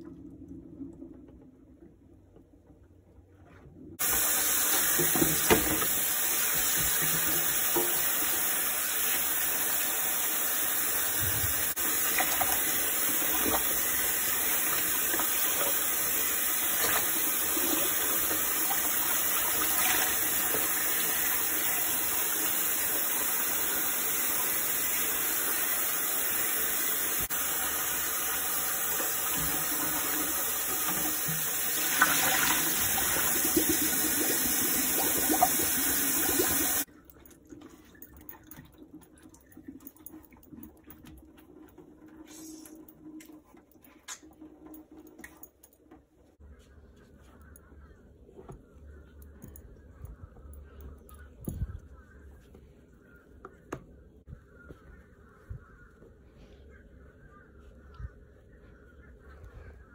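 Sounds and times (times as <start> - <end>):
faucet running into water: 4.0 - 36.9.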